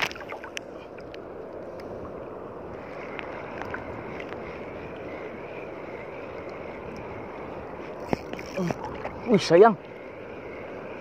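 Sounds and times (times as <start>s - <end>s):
faint ticks: 0.0s - 10.7s
sea water washing: 0.0s - 11.0s
wind on microphone: 0.0s - 11.0s.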